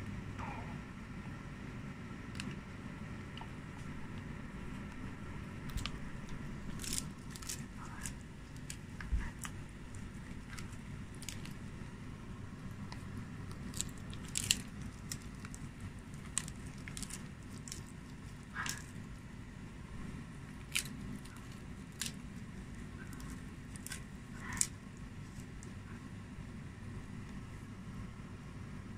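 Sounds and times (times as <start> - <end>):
dog chewing with crunching teeth: 12.5 - 19.2.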